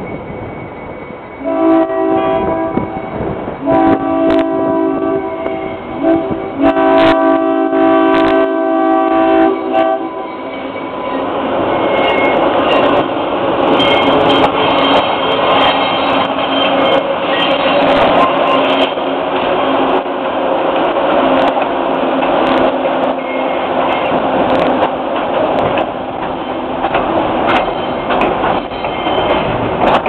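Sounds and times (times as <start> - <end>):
locomotive engine and wheels rumbling: 0.0 - 30.0
locomotive horn: 1.4 - 12.8.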